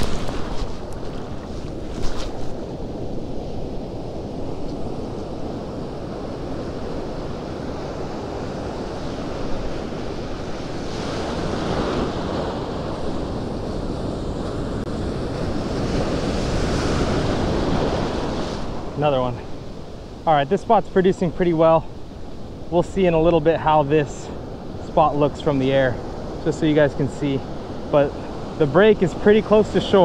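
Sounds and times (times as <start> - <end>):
wind buffeting microphone: 0.0 - 20.3
ocean surf washing: 0.0 - 30.0.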